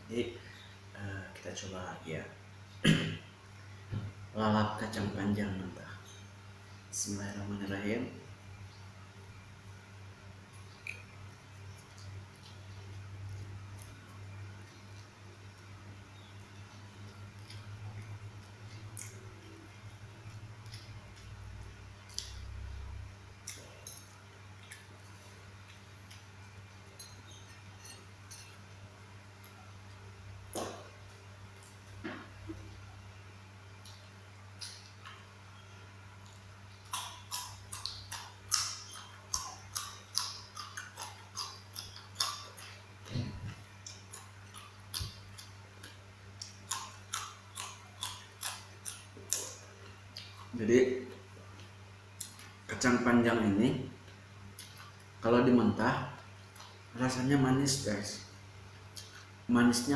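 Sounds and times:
steady low hum: 0.0s - 59.9s
chewing food: 10.4s - 32.9s, 33.7s - 52.8s, 54.0s - 55.2s, 56.2s - 57.2s, 58.7s - 59.4s
fork clinking and scraping: 26.9s - 28.6s
bean being chewed crunchily: 36.1s - 52.8s.

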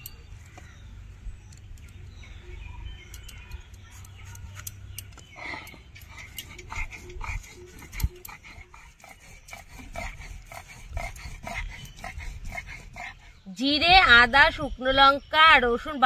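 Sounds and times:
animal calls: 5.4s - 13.5s.

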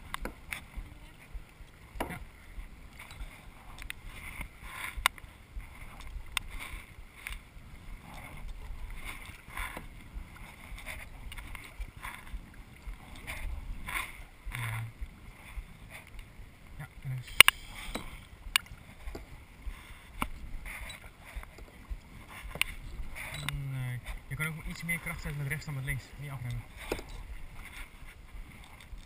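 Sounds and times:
paddles splashing in water: 0.0s - 29.0s
sharp clicks: 17.3s - 18.7s.

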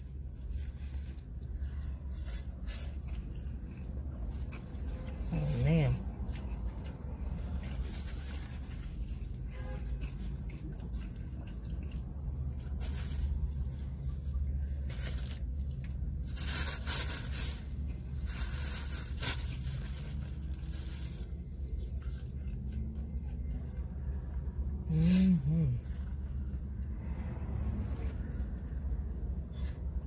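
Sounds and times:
crunching while eating: 0.1s - 26.4s.

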